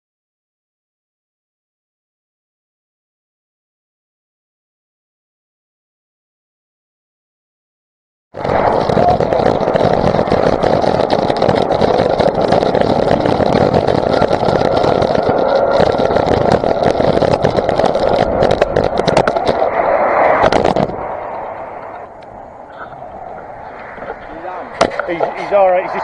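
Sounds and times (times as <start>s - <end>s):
motorcycle engine running: 8.4s - 19.6s
wind buffeting microphone: 8.4s - 26.0s.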